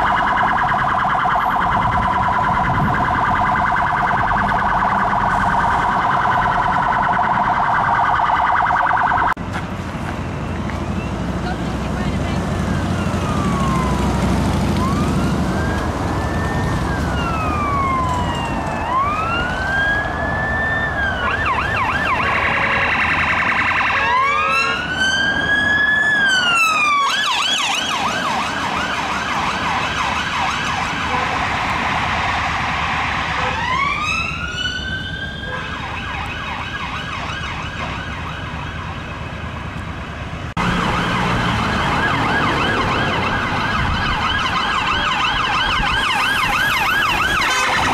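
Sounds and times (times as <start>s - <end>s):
police siren wailing and yelping: 0.0s - 9.4s, 12.6s - 39.4s, 40.6s - 47.9s
siren cycling fast: 0.0s - 9.4s, 20.7s - 30.5s, 40.6s - 47.9s
road traffic: 0.0s - 47.9s.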